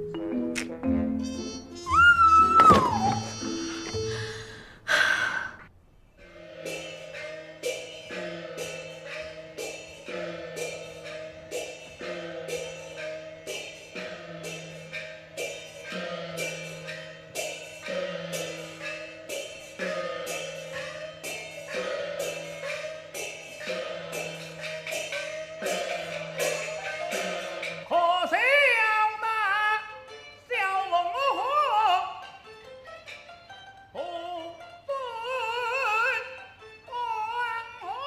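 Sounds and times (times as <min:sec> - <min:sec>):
sustained instrumental notes: 0:00.0 - 0:04.6.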